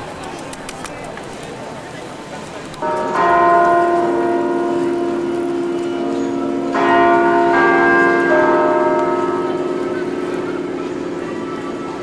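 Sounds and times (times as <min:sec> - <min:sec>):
tower bells chiming: 0:02.8 - 0:12.0.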